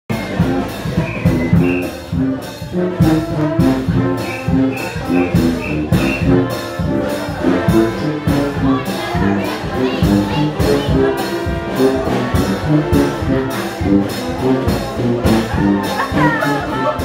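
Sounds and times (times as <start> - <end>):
sousaphone bass line: 0.1 - 2.4, 3.0 - 6.7
brass band playing jazz: 0.1 - 17.0
drums keeping a beat: 0.1 - 17.0.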